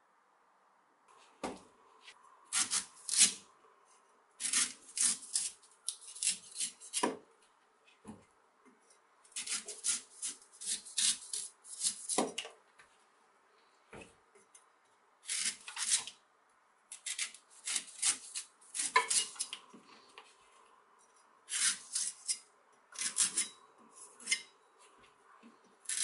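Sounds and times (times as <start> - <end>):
cleaver scraping coconut husk: 2.5 - 3.4, 4.4 - 7.1, 9.4 - 12.2, 15.2 - 16.2, 17.0 - 19.6, 21.5 - 22.4, 23.0 - 24.5.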